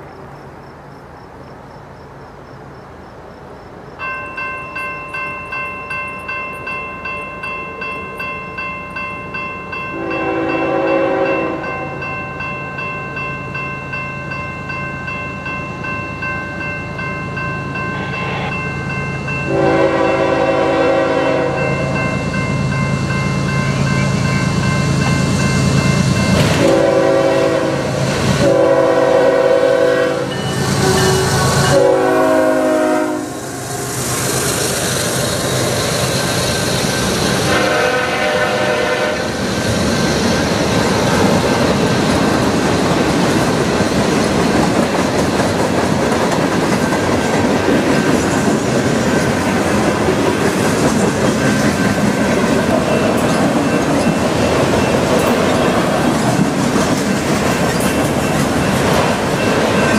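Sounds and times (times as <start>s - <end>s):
train rumble: 0.0s - 59.9s
railroad crossing bell ringing: 4.0s - 33.4s, 41.0s - 59.9s
locomotive horn blasts: 9.9s - 12.0s, 19.5s - 22.0s, 26.5s - 33.5s, 37.4s - 39.3s.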